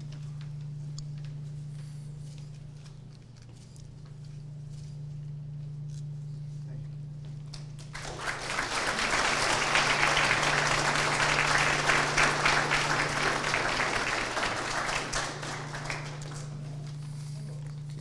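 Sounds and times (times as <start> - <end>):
audience applauding: 7.8 - 17.3.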